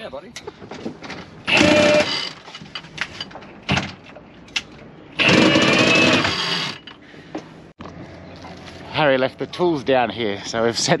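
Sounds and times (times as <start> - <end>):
cordless drill motor whine: 1.5 - 2.3.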